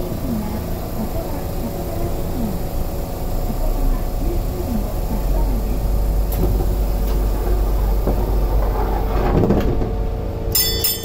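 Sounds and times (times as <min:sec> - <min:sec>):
tram equipment hum: 0:00.0 - 0:11.0
passenger door sliding shut: 0:06.2 - 0:10.1.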